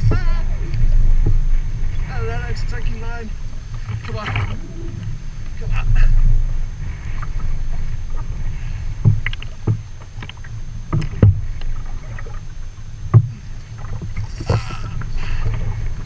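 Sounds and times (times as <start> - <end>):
low steady rumble: 0.0 - 16.0
water slapping against plastic hull: 3.3 - 5.7, 9.0 - 16.0
sharp knocks on hull: 9.0 - 11.5.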